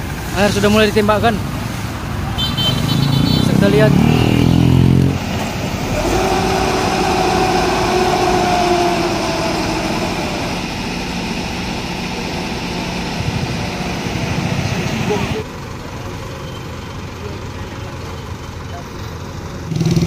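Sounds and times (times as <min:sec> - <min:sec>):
heavy diesel engines under load: 0:00.0 - 0:20.0
steady whine: 0:05.2 - 0:15.4.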